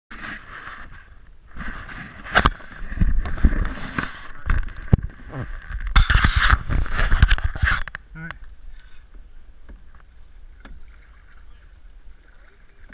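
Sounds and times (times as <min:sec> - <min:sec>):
camera handling bumps: 0:05.7 - 0:08.0
paddle splashing in water: 0:08.4 - 0:12.9
paddle knocking against hull: 0:09.1 - 0:11.5.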